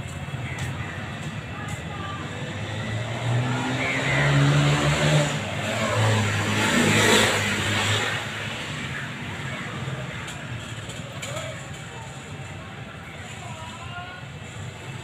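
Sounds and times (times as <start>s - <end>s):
vehicle engine passing by: 2.2s - 10.1s.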